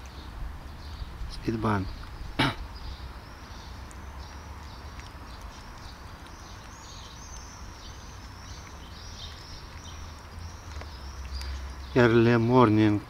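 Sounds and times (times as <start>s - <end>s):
bird singing: 0.0s - 13.0s
cat chewing food: 3.0s - 11.9s.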